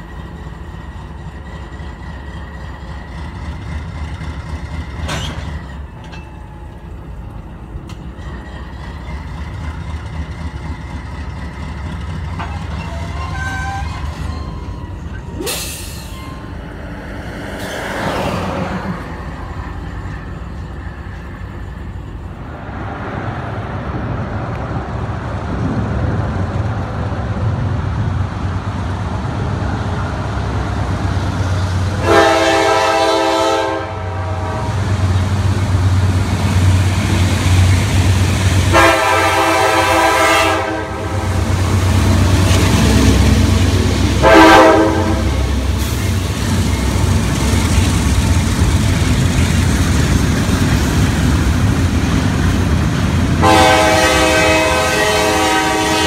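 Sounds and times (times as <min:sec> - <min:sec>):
locomotive engine rumble: 0:00.0 - 0:56.0
locomotive air horn blasts: 0:31.9 - 0:35.0, 0:38.7 - 0:41.9, 0:42.8 - 0:45.9, 0:53.4 - 0:56.0.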